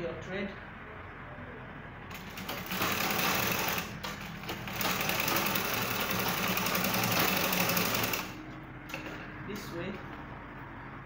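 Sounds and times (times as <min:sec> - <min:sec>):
treadle sewing machine running: 0:02.1 - 0:08.4.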